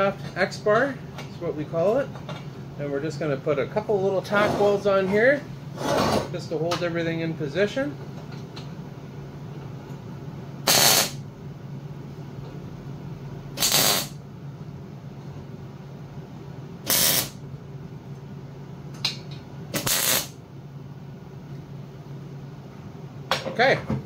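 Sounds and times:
welder short bursts: 0:10.6 - 0:11.2, 0:13.6 - 0:14.2, 0:16.8 - 0:17.4, 0:19.8 - 0:20.4.

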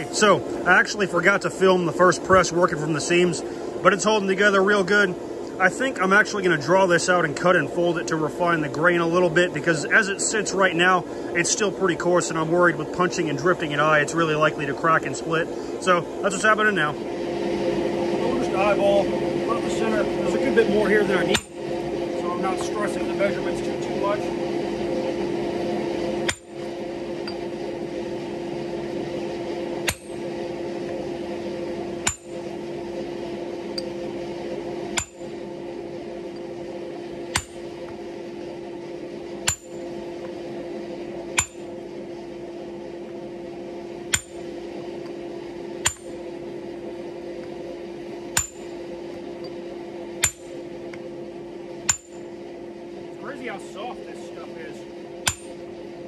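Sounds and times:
low hum: 0:00.0 - 0:56.0
hammer striking chisel on metal: 0:21.3 - 0:21.6, 0:26.3 - 0:26.5, 0:29.9 - 0:30.2, 0:32.0 - 0:32.4, 0:35.0 - 0:35.3, 0:37.3 - 0:37.6, 0:39.5 - 0:39.8, 0:41.4 - 0:41.6, 0:44.1 - 0:44.4, 0:45.8 - 0:46.2, 0:48.4 - 0:48.7, 0:50.2 - 0:50.6, 0:51.9 - 0:52.2, 0:55.3 - 0:55.6.

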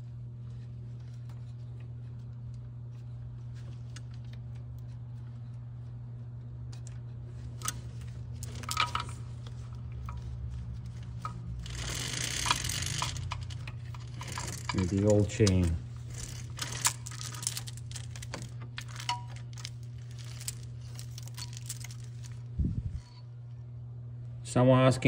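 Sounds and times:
steady low hum: 0:00.0 - 0:25.0
metal chain links clicking: 0:11.6 - 0:22.4.

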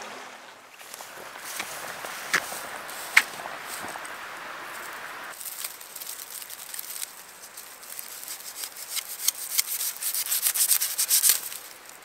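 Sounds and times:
dry stalks rubbed in hands: 0:00.8 - 0:12.0.

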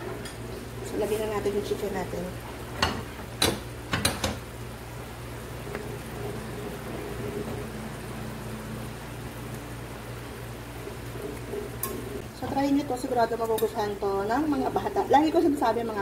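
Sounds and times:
sauce simmering in frying pan: 0:00.4 - 0:16.0.

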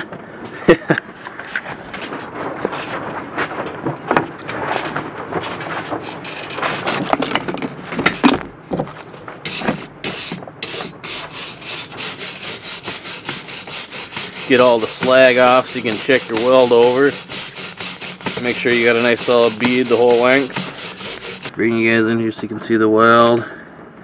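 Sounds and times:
scraping slag off a weld: 0:09.4 - 0:21.5
wire brush scrubbing metal: 0:09.4 - 0:21.5.

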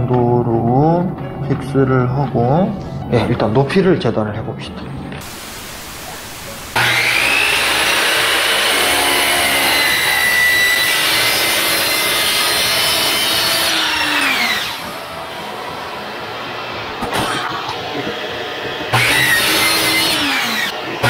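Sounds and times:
miter saw cutting wood: 0:05.2 - 0:21.0.

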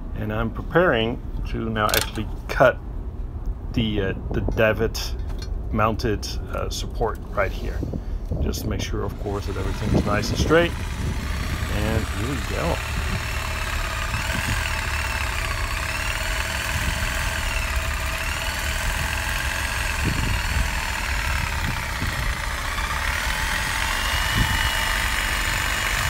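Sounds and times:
jigsaw cutting metal tube: 0:09.0 - 0:26.0.

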